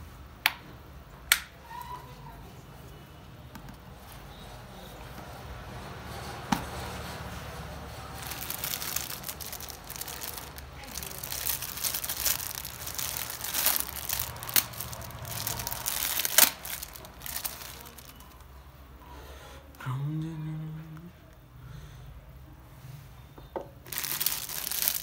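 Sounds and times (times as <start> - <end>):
plastic bag crinkling: 8.0 - 18.5, 23.9 - 25.0.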